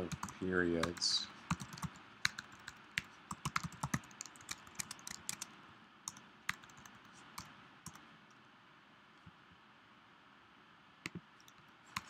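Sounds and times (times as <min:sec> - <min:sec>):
typing on computer keyboard: 0:00.0 - 0:05.5, 0:06.1 - 0:08.0.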